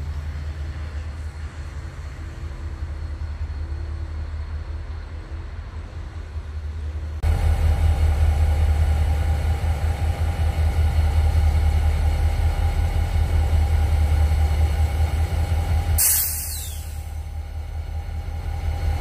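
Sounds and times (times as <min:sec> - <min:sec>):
locomotive engine idling: 0:00.0 - 0:19.0
burst of hiss: 0:16.0 - 0:17.1.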